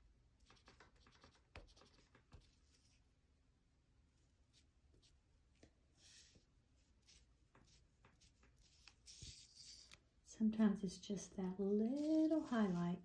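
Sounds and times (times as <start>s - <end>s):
pastel scratching on paper: 0.4s - 3.0s, 5.9s - 10.0s, 11.8s - 13.0s.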